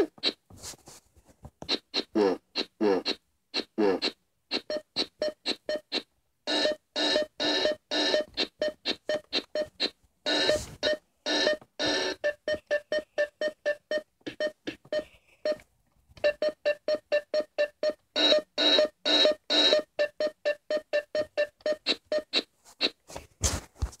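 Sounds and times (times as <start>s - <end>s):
repeated synth keyboard note: 4.0s - 12.9s.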